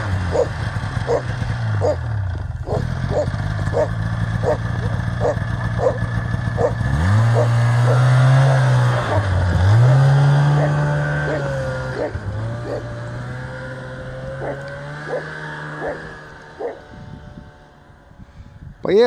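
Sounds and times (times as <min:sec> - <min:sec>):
snowmobile engine revving: 0:00.0 - 0:19.0
dog barking: 0:00.3 - 0:00.5, 0:01.8 - 0:02.0, 0:02.7 - 0:06.0, 0:06.6 - 0:06.8, 0:07.4 - 0:08.1, 0:10.6 - 0:12.9, 0:14.4 - 0:16.8.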